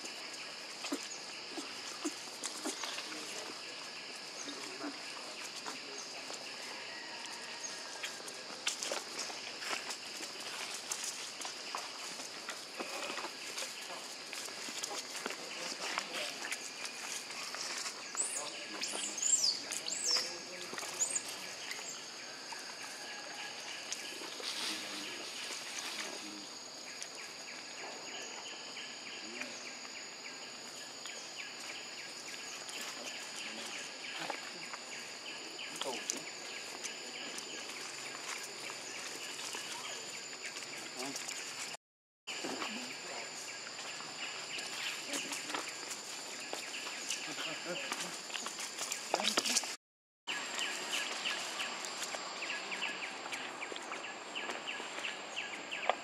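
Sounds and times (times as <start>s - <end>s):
constant hiss: 0.0s - 56.0s
insects droning: 0.0s - 56.0s
dry leaves rustling: 22.9s - 26.3s.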